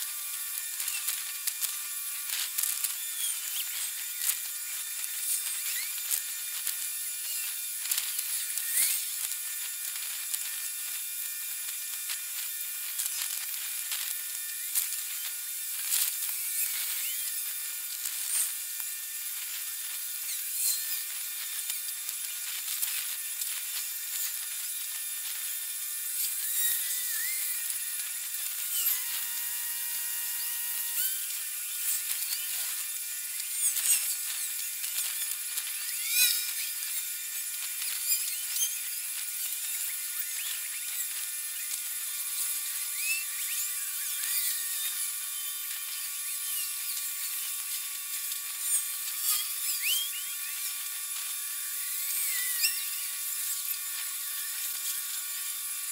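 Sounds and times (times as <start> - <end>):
sped-up high-pitched buzzing hiss: 0.0 - 55.9.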